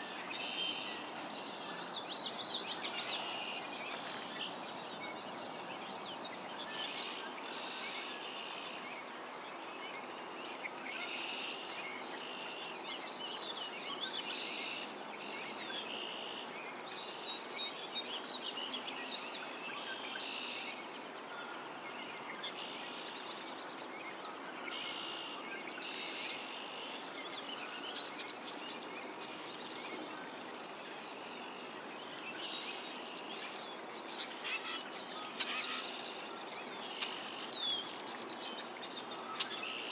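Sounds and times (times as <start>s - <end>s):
songbirds singing: 0.0s - 39.9s
nearer bird calling: 34.2s - 36.0s.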